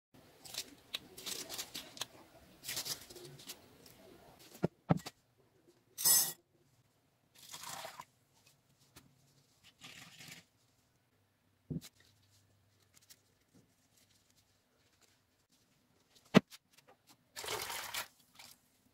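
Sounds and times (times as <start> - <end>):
gloved hands crackling and rustling: 0.3 - 4.6, 11.8 - 17.2.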